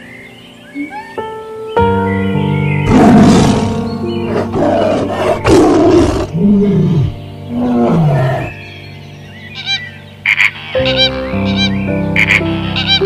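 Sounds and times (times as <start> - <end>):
background music: 0.0 - 13.0.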